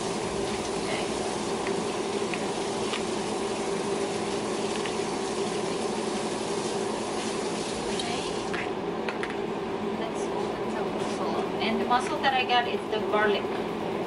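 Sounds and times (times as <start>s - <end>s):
broth boiling with bubbling hiss: 0.0s - 9.0s.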